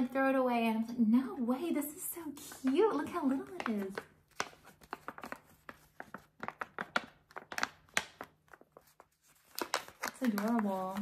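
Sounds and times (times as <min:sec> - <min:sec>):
plastic bag crinkling: 0:02.4 - 0:11.0.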